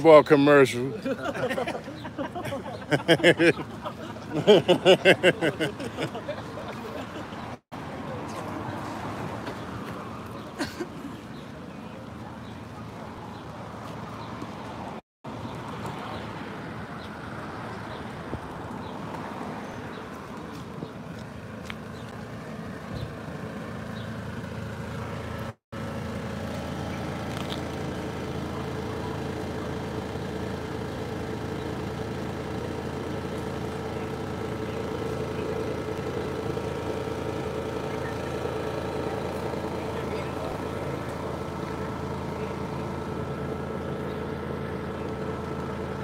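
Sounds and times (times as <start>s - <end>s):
engine idling hum: 0.0s - 46.0s
street background noise: 0.0s - 46.0s.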